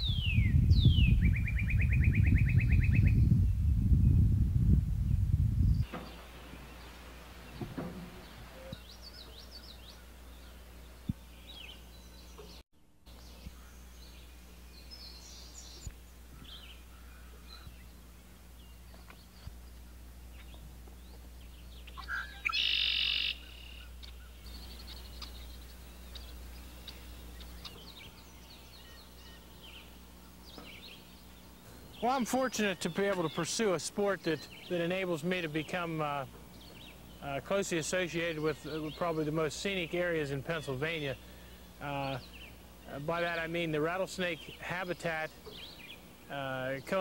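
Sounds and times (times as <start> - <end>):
birds chirping and calling: 0.0 - 3.6, 5.7 - 12.6, 13.2 - 47.0
low rumble: 0.0 - 5.8
steady low hum: 0.0 - 47.0.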